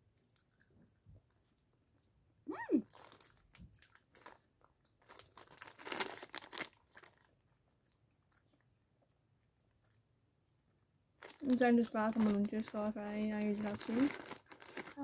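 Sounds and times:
plastic bag crinkling: 0:02.8 - 0:07.4, 0:11.2 - 0:15.0.

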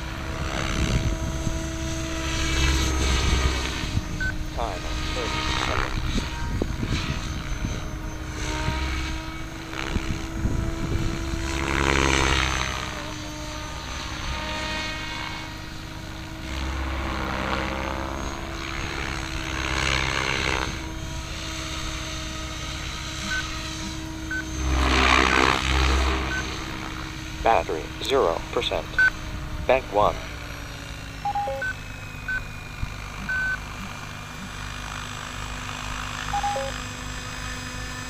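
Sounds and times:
helicopter motor whine: 0:00.0 - 0:38.0.

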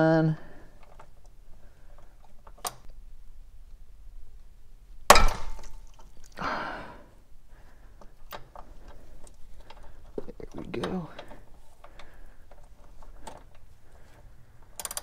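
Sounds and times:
heavy breath of effort: 0:06.4 - 0:10.2, 0:11.2 - 0:15.0.

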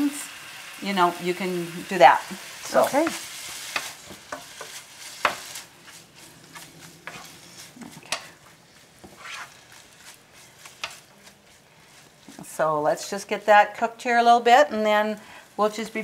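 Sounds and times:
meat sizzling in a skillet: 0:00.0 - 0:13.3
wooden spoon scraping a pan: 0:02.3 - 0:13.2.

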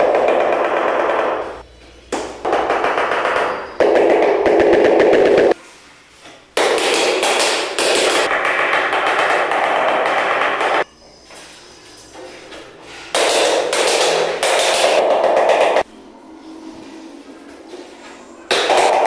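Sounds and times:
rubber mallet tapping tile: 0:02.2 - 0:05.6, 0:13.2 - 0:15.8.

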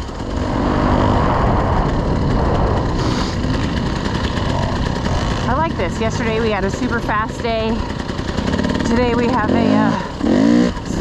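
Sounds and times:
wind buffeting microphone: 0:00.0 - 0:09.7
dirt bike engine running: 0:00.0 - 0:11.0.

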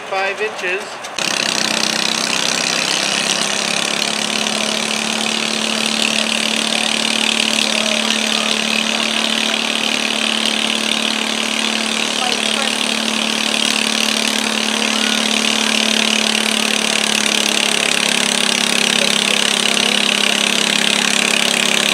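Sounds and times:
tractor engine running hard: 0:01.0 - 0:21.9.

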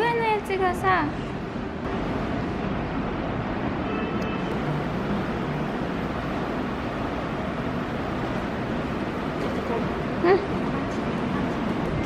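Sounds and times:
steady rushing noise: 0:00.4 - 0:12.0.

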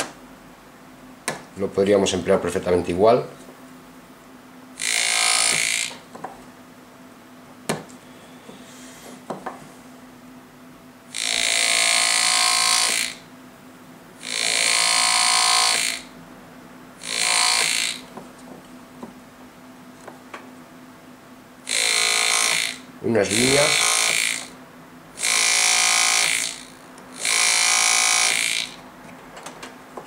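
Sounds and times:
pneumatic engraver buzzing: 0:04.8 - 0:06.1, 0:11.1 - 0:13.3, 0:14.2 - 0:16.1, 0:17.0 - 0:18.1, 0:21.7 - 0:24.6, 0:25.2 - 0:28.8.

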